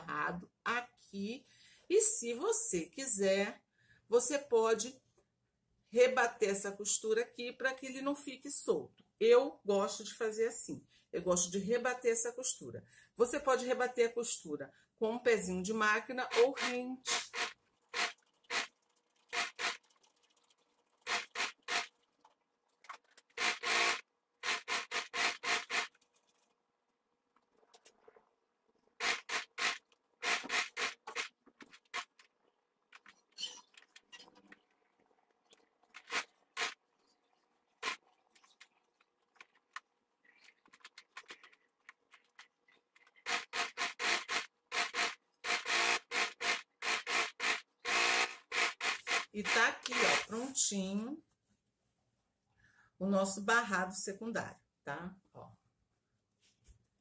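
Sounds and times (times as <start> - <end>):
sewing machine stitching: 16.2 - 19.9, 21.0 - 21.9, 23.2 - 26.0, 29.0 - 32.2, 35.9 - 36.8, 37.8 - 38.0, 43.0 - 50.5.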